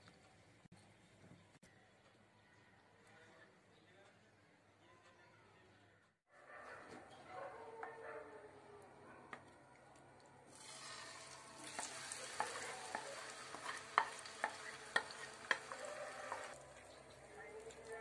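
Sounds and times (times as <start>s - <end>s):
chicken sizzling in hot oil: 10.5s - 18.0s
wooden spatula knocking on pan: 11.8s - 16.6s.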